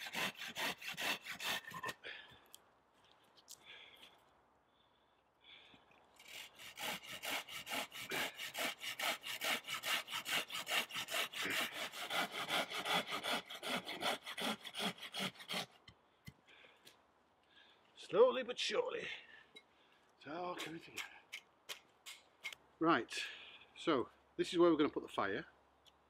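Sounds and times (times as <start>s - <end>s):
hand saw cutting wood: 0.0s - 2.0s, 6.2s - 15.8s.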